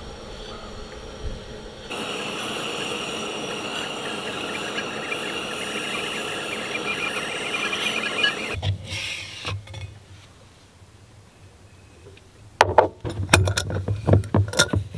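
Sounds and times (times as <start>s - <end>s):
steam hissing: 0.0s - 9.4s
kettle whistling: 1.9s - 8.6s.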